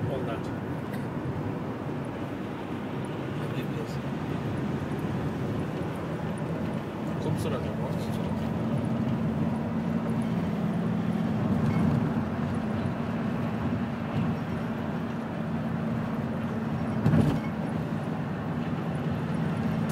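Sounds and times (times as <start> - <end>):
car engine hum: 0.0 - 19.9.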